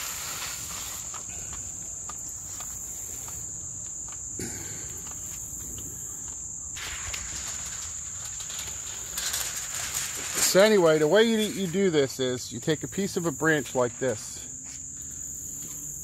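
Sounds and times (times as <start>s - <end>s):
short rustle: 0.0s - 3.5s, 6.8s - 14.8s
insects chirring: 0.0s - 16.0s.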